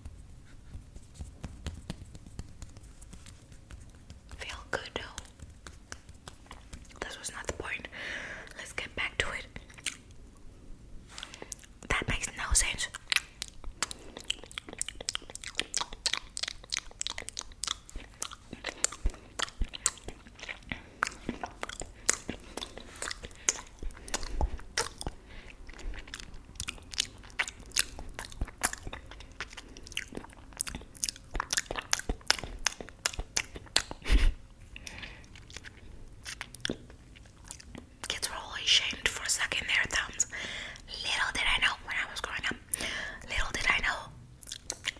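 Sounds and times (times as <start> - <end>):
lip and tongue smacks: 0.1 - 7.6, 9.6 - 10.2, 11.2 - 12.1, 12.8 - 38.4, 44.4 - 44.9
wet mouth sucking and licking: 11.2 - 34.2, 34.8 - 38.4, 44.4 - 44.9.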